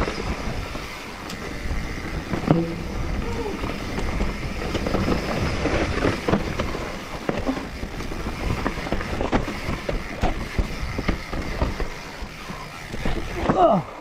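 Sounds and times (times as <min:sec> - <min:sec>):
bike tyres rumbling on dirt: 0:00.0 - 0:14.0
wheels knocking and rattling: 0:00.0 - 0:14.0.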